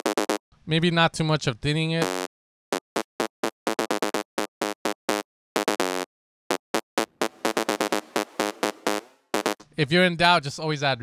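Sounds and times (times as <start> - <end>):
distorted synth staccato riff: 2.0 - 6.1, 6.7 - 9.6.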